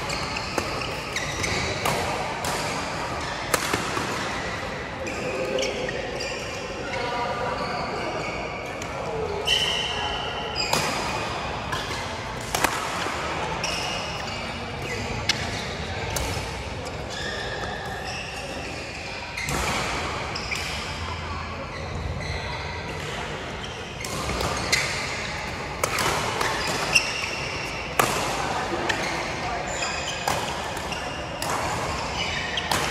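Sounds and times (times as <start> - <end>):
shoes squeaking on court floor: 0.0 - 2.0, 16.8 - 19.6, 21.7 - 32.9
racket hitting shuttlecock: 0.4 - 4.4, 10.7 - 13.8, 24.0 - 29.2, 30.1 - 32.9.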